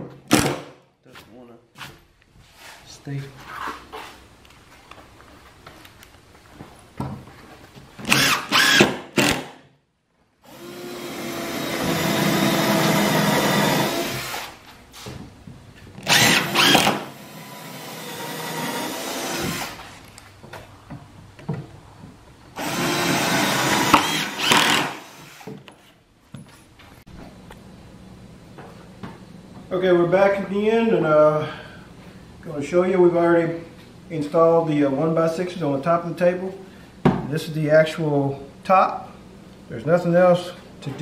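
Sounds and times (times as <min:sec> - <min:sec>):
impact driver driving screws: 0:08.0 - 0:09.6, 0:16.0 - 0:17.2, 0:22.6 - 0:25.6.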